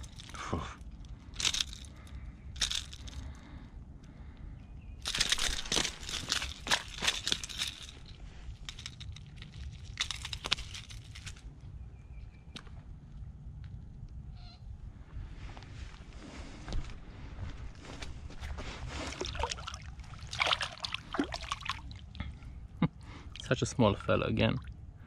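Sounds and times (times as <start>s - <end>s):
rustling handling crackles: 0.0s - 3.4s, 5.0s - 11.5s, 15.4s - 22.2s.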